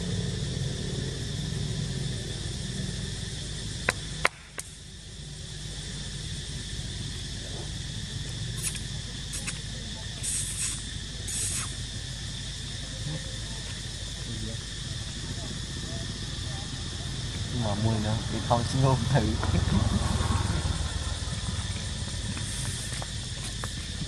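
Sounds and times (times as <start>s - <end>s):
insects droning: 0.0s - 24.0s
short high hissing bursts: 8.6s - 12.0s.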